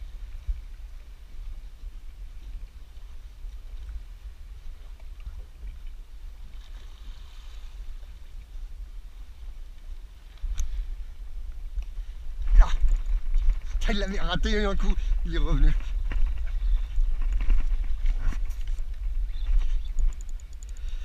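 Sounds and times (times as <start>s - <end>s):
low rumble of wind and water: 0.0s - 21.0s.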